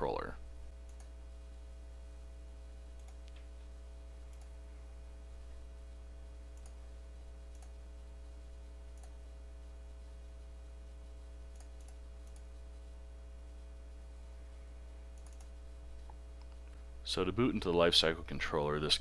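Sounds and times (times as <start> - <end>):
low electrical hum: 0.0 - 19.0
mouse clicks: 3.0 - 3.5, 4.3 - 4.5, 6.5 - 6.8, 7.5 - 7.8, 11.5 - 12.5, 15.2 - 16.8.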